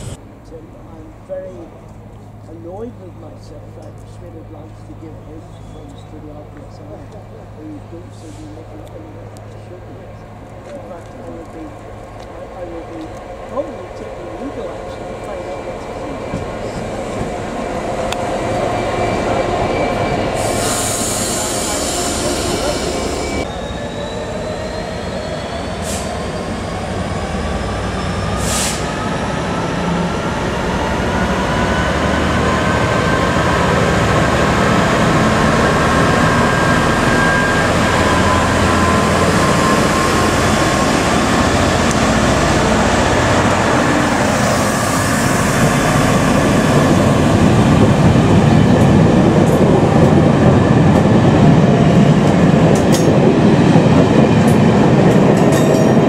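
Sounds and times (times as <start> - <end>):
diesel locomotive accelerating: 0.0 - 56.0.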